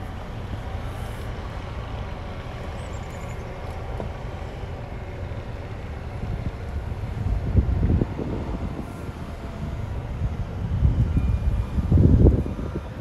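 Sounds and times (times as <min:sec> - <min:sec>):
motor vehicle low rumble: 0:00.0 - 0:13.0.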